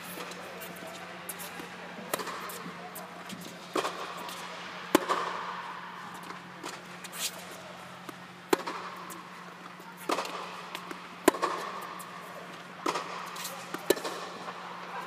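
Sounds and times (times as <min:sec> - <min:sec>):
steady low hum: 0:00.0 - 0:15.0
rackets striking tennis ball: 0:00.1 - 0:15.0
ball bouncing on hard court: 0:08.5 - 0:09.2, 0:10.0 - 0:11.8.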